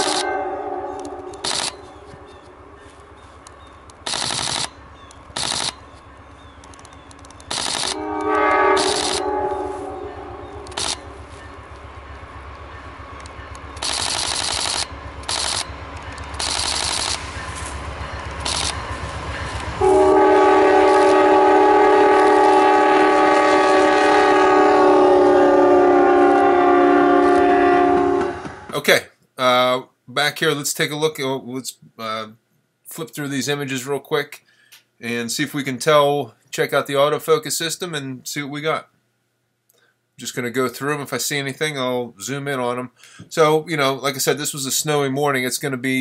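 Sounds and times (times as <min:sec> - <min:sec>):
train horn: 0:00.0 - 0:03.1, 0:07.8 - 0:13.1, 0:19.4 - 0:28.7
camera shutter rapid clicks: 0:01.4 - 0:01.8, 0:04.0 - 0:05.8, 0:06.6 - 0:08.0, 0:10.6 - 0:11.0, 0:13.8 - 0:17.3, 0:18.3 - 0:18.8.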